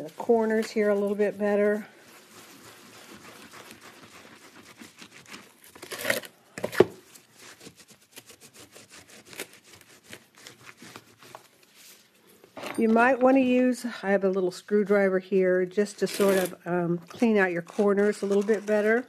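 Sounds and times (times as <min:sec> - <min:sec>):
paper towels rubbing on tiles: 0:00.0 - 0:05.8, 0:07.0 - 0:12.2.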